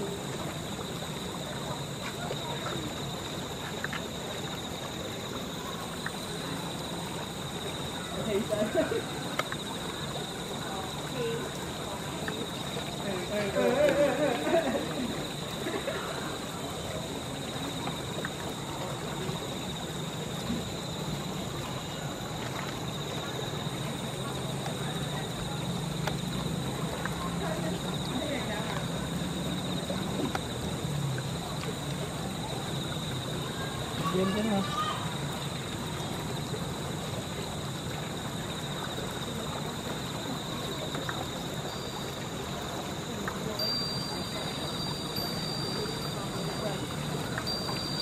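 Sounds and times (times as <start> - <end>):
insects buzzing: 0.0 - 48.0
steady hiss: 0.0 - 48.0
faint tick: 26.0 - 26.3.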